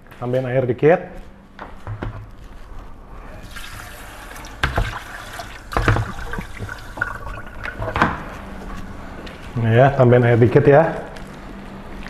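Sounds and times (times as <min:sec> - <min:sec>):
tap water running into bowl: 0:03.5 - 0:08.2
bowl knocking against sink: 0:05.7 - 0:08.3.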